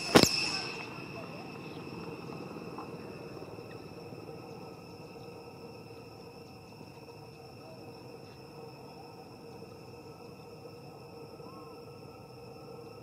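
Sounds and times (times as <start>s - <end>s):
sharp click: 0.0s - 0.8s
shrill insect drone: 0.0s - 13.0s.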